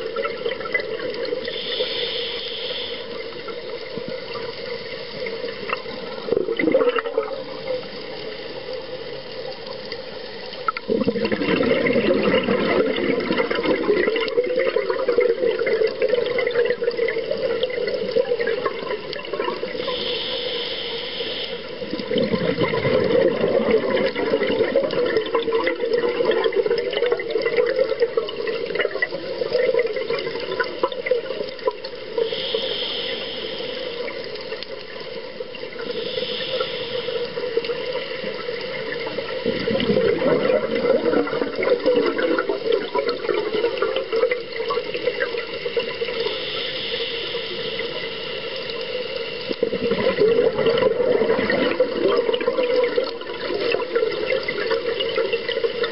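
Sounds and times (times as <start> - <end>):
underwater bubbling and gurgling: 0.0 - 55.9
hissing regulator inhalations: 1.4 - 3.8, 19.7 - 21.9, 32.2 - 34.4, 35.8 - 38.4, 46.1 - 49.4.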